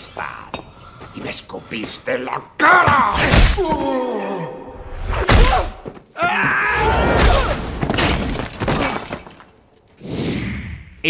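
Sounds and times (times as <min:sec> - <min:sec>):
man groaning and grunting: 0:02.6 - 0:04.8.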